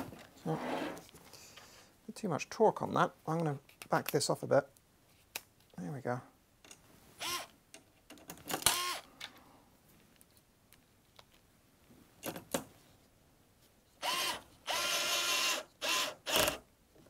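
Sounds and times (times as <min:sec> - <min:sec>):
cordless screwdriver whirring: 0:07.2 - 0:07.5, 0:08.6 - 0:09.0, 0:14.0 - 0:16.6.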